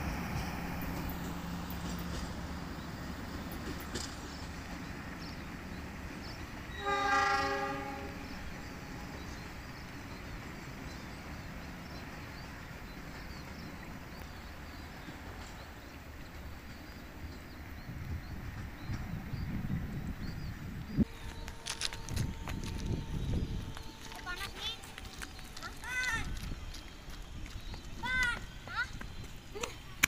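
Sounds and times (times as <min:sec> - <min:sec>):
train rumbling on track: 0:00.0 - 0:30.0
train horn: 0:06.7 - 0:09.4, 0:21.0 - 0:25.3.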